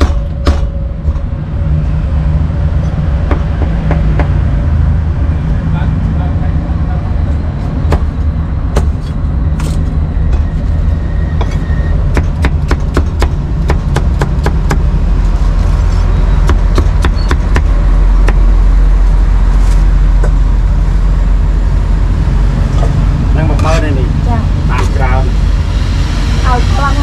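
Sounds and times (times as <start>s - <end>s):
road traffic rumble: 0.0s - 27.0s
cleaver chopping on wooden block: 12.1s - 14.8s.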